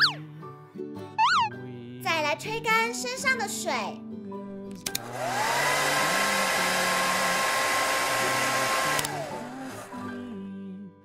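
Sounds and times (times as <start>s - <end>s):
hair dryer switch click: 4.7s - 9.9s
hair dryer whine: 4.9s - 10.2s.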